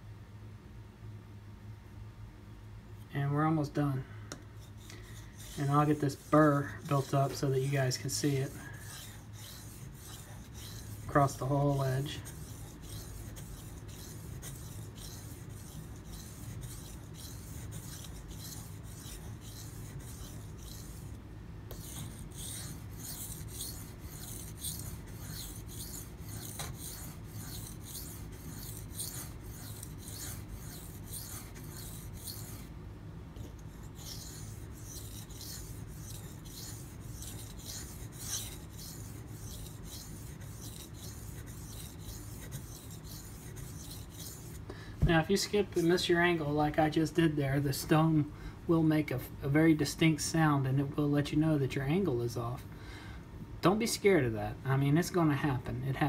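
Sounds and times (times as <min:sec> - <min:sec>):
knife scraping on water stone: 0:04.6 - 0:32.7, 0:33.4 - 0:44.6.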